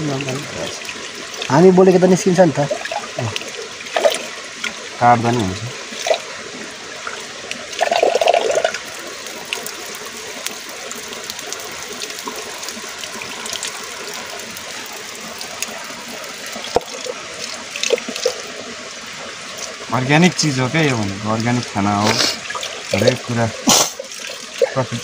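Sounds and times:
water running over rock: 0.0s - 25.0s
water sloshing in a pot: 0.0s - 25.0s
water poured onto rock: 7.7s - 18.5s.

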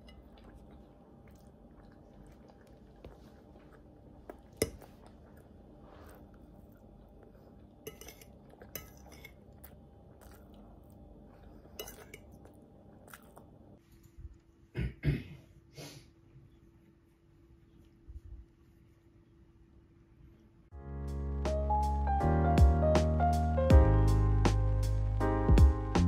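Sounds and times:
low background hum: 0.0s - 20.8s.

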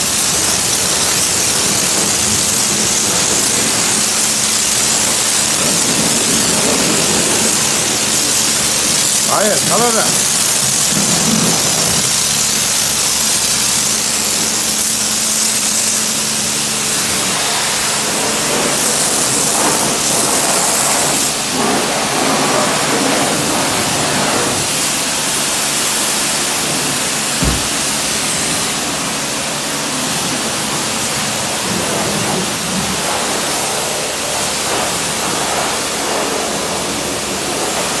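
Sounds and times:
pressure washer spraying: 0.0s - 38.0s
low thump: 27.4s - 28.0s.

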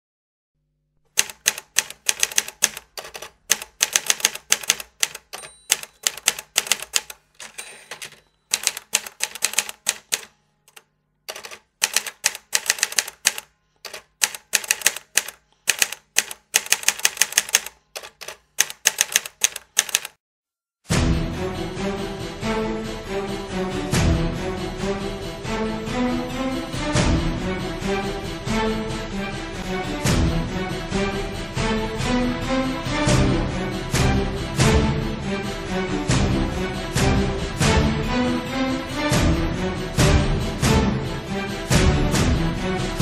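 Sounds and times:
typewriter keys striking: 1.1s - 20.2s.

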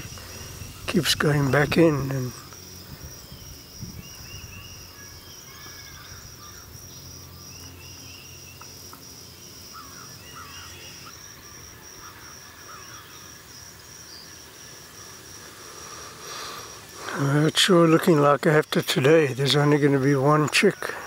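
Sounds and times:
faint bird chirps: 0.0s - 8.8s, 9.7s - 13.3s
cricket chirping: 0.0s - 21.0s.

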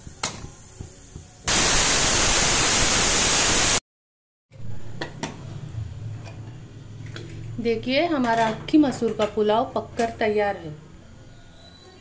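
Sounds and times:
pressure cooker whistle hissing: 1.4s - 3.8s.

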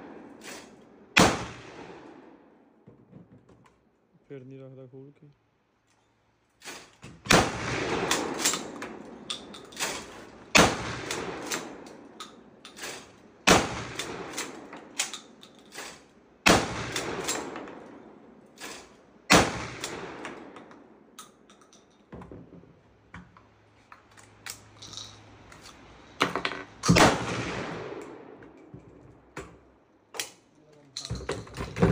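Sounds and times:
shotgun shots: 0.0s - 2.4s, 6.7s - 12.2s, 12.8s - 15.1s, 16.4s - 20.6s, 26.8s - 28.4s
gun handling clicks and clatter: 2.8s - 4.1s, 5.8s - 16.2s, 16.8s - 19.0s, 19.6s - 31.9s.

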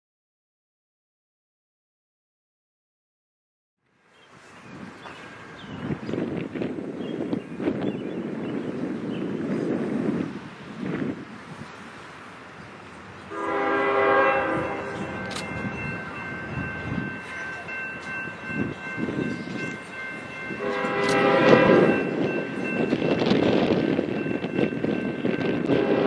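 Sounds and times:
rumble of approaching train: 3.8s - 26.0s
locomotive air horn blasts: 13.3s - 15.8s, 20.5s - 22.4s, 25.4s - 26.0s.

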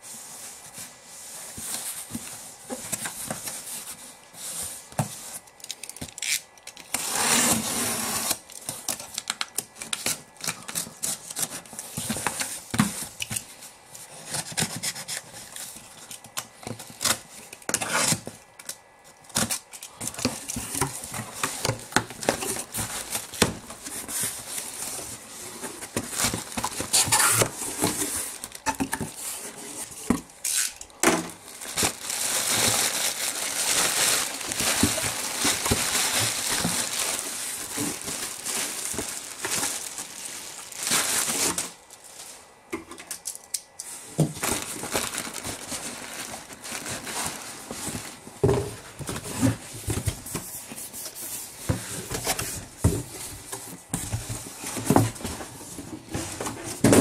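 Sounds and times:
plastic packing crinkling: 4.8s - 57.0s
cardboard scrapes and knocks: 7.0s - 8.4s, 20.3s - 30.2s.

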